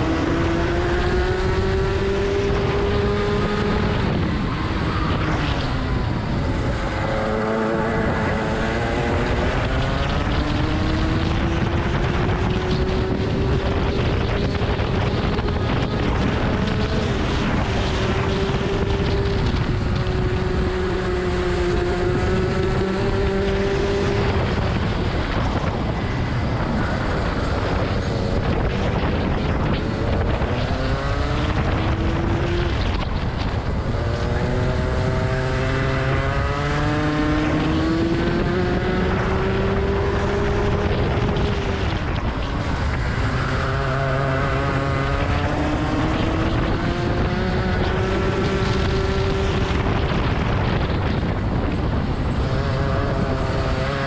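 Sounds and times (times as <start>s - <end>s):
kart engine at racing speed: 0.0s - 54.0s
wind rushing over microphone: 0.0s - 54.0s.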